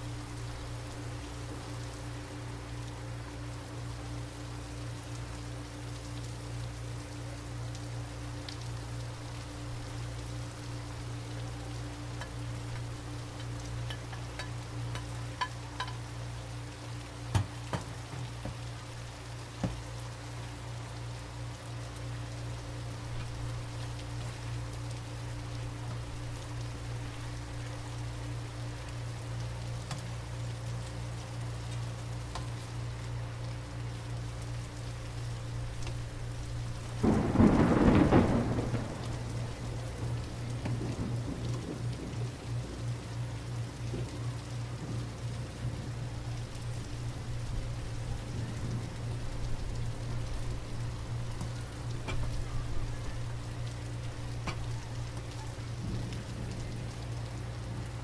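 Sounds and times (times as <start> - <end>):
meat and vegetables sizzling: 9.9 - 20.0.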